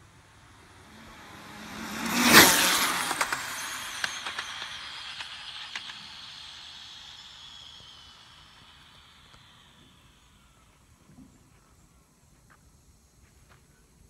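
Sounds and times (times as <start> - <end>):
rc car motor whine passing: 0.0 - 11.9
sharp ticks: 0.9 - 9.8.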